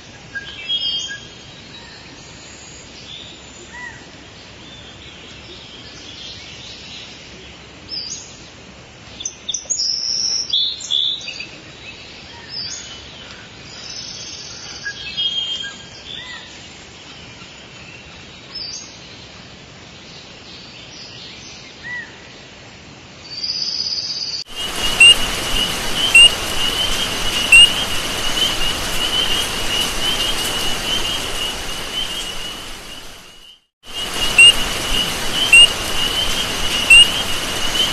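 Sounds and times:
fast repeated chirps: 24.5s - 37.9s
high chirps and twitters: 24.5s - 37.9s
steady hiss: 24.5s - 37.9s.

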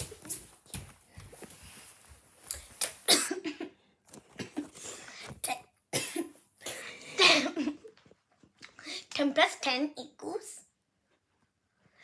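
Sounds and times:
child coughing: 3.1s - 3.8s, 5.4s - 7.6s.

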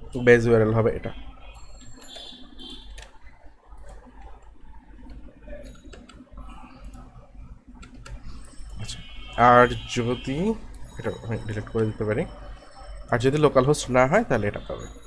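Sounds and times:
low steady hum: 0.0s - 15.0s
keyboard keys clicking: 1.8s - 7.1s, 7.7s - 8.9s.

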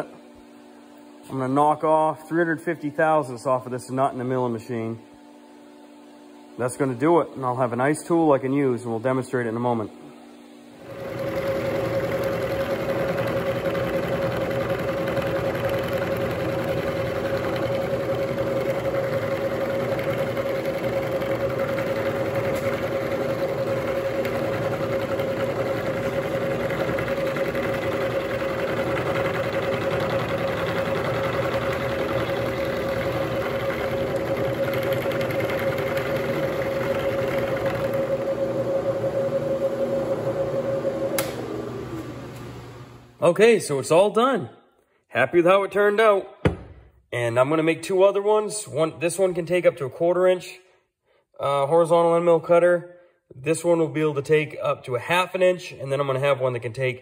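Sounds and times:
milling machine motor whine: 9.1s - 43.2s.

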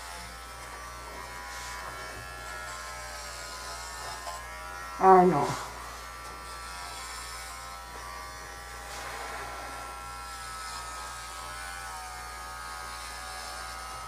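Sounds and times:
electric clipper buzzing: 0.0s - 14.0s.

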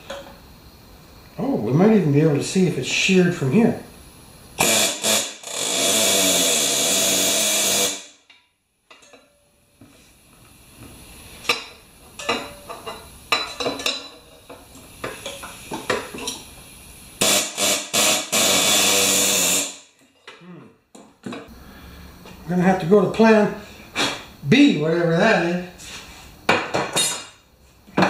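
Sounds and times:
pneumatic impact wrench hammering: 4.6s - 8.3s, 17.2s - 19.9s.

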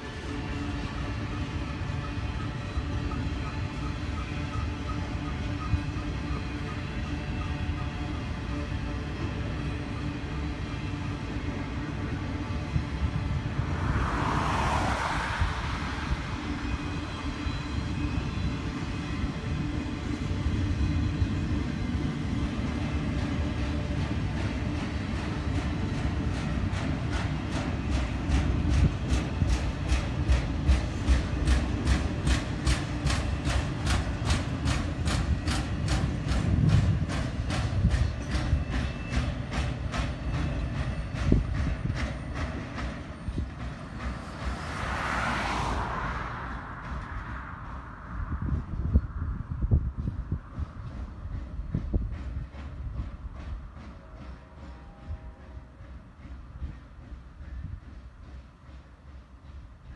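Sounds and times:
freight cars rumbling on rails: 0.0s - 59.9s
train wheels clicking over track: 0.0s - 59.9s
car passing with tyre noise: 12.9s - 17.9s, 43.9s - 50.4s.

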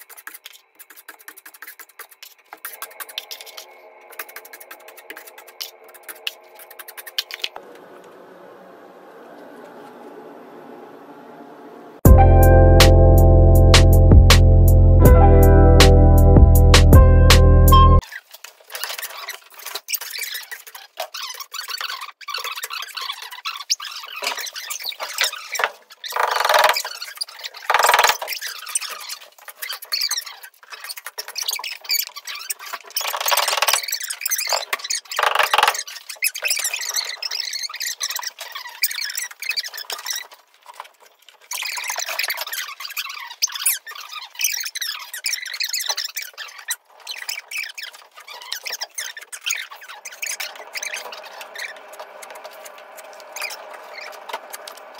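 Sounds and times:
drywall knife scraping and squeaking: 18.0s - 54.9s.

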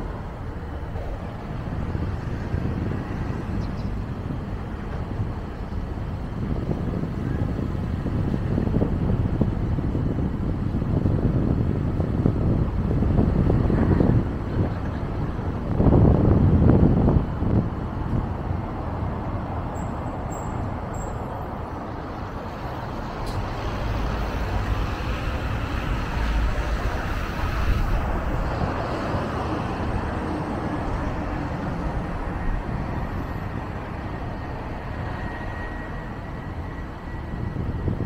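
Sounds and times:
road and traffic noise: 0.0s - 38.0s.

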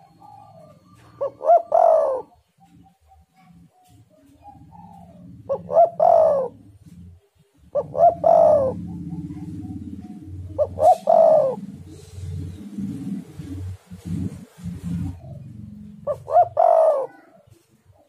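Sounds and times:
dove cooing: 0.0s - 18.0s
low background rumble: 5.0s - 16.6s.

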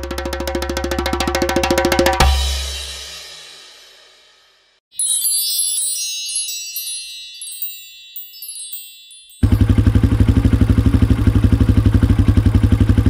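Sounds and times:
sparkly tinkling chime: 4.8s - 10.0s
loud engine pulsing: 9.4s - 13.0s.

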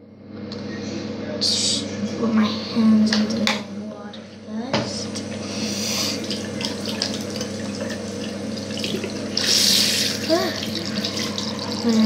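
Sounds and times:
hands washing under water: 5.4s - 12.0s
tap running into basin: 6.1s - 12.0s.

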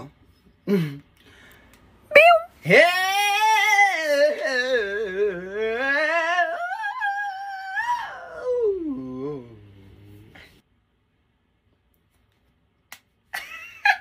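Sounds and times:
person singing wordless vocal run: 2.6s - 9.8s.

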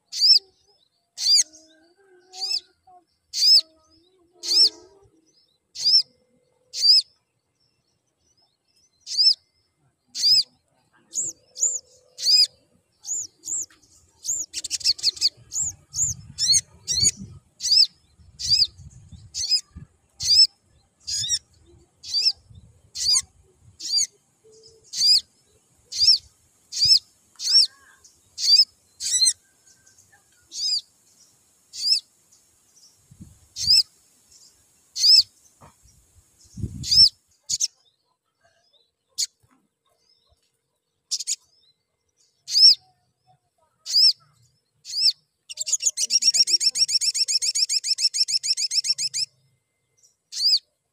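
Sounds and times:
sunbird chirping: 0.0s - 50.9s.

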